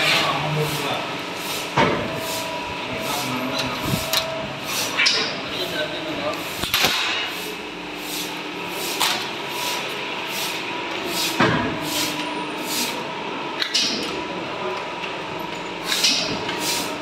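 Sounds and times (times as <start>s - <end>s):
workshop machinery noise: 0.0s - 17.0s.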